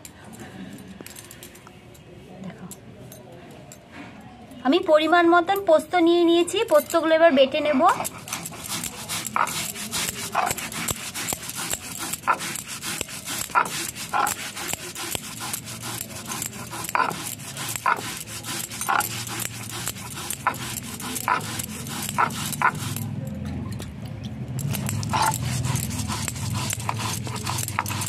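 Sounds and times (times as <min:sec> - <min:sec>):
stone scraping on stone: 0:06.6 - 0:28.0.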